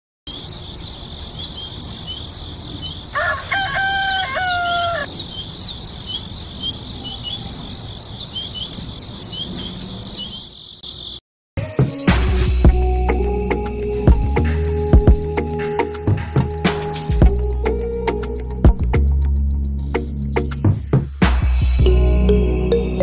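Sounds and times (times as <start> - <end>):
rooster crowing: 2.9 - 5.2.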